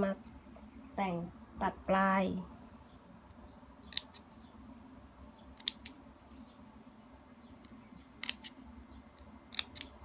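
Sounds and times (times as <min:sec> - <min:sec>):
scissors snipping ribbon: 0:09.5 - 0:09.9.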